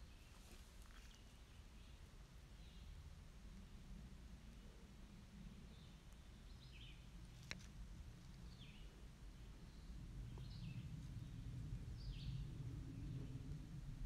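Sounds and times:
jet airliner rumble overhead: 8.8s - 14.0s.

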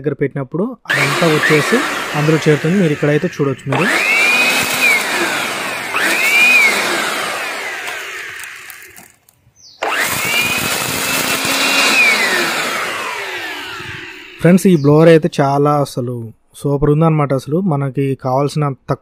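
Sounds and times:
blower vacuum motor whine: 0.9s - 9.1s, 9.8s - 14.8s.

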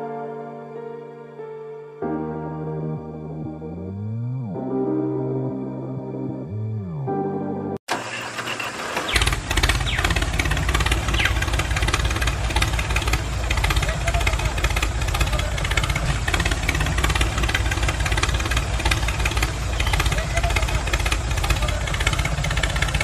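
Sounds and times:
tractor engine running: 7.9s - 23.0s.

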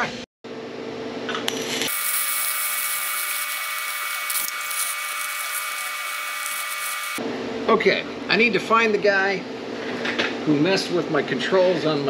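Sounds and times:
welding arc buzzing hiss: 1.4s - 7.2s.

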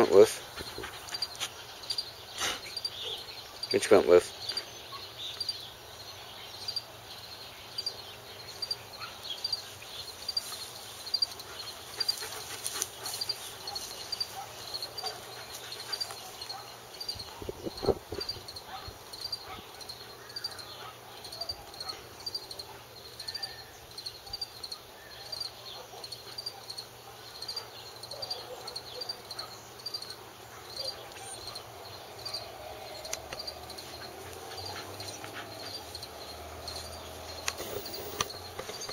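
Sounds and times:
dog panting: 0.0s - 3.2s, 11.1s - 17.5s, 30.5s - 38.3s
insects chirping: 0.0s - 38.9s.

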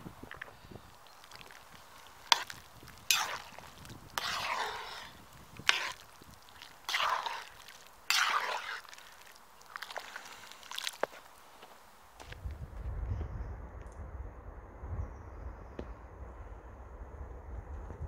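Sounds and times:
ladle sloshing thick soup: 0.3s - 11.4s.

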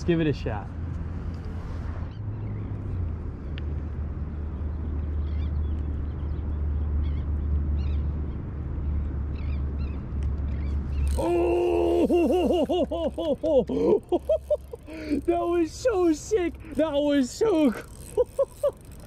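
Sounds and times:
birds chirping: 2.0s - 19.0s.

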